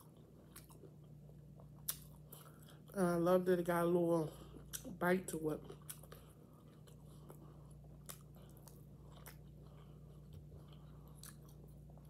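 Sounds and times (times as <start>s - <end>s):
close-up chewing: 0.0s - 3.0s, 4.3s - 12.0s
steady low hum: 0.0s - 12.0s
wet mouth clicks: 1.8s - 2.1s.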